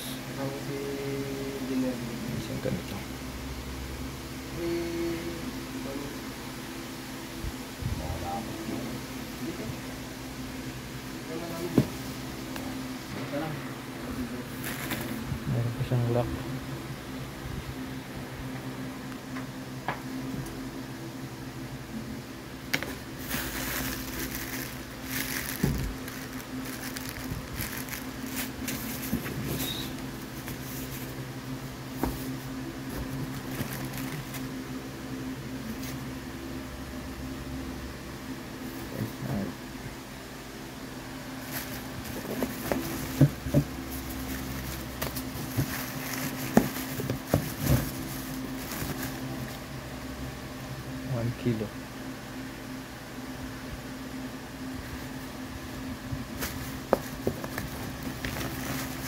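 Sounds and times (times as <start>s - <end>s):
steady low hum: 0.0s - 59.0s
plastic bags crinkling: 14.5s - 15.2s, 22.8s - 31.1s, 33.0s - 34.5s, 41.4s - 49.6s, 56.4s - 59.0s.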